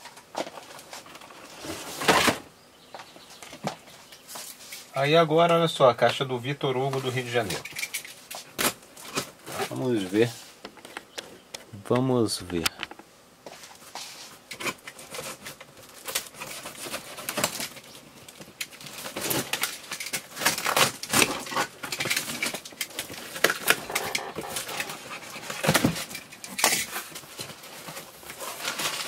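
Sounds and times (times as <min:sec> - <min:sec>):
cardboard flaps rustling: 0:08.4 - 0:10.3, 0:13.5 - 0:29.0
tearing and crinkling: 0:14.5 - 0:29.0.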